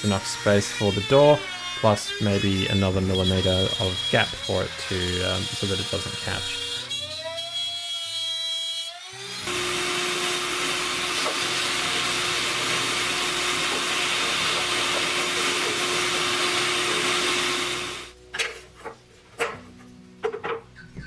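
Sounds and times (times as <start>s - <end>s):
electric motor humming: 9.1s - 18.2s.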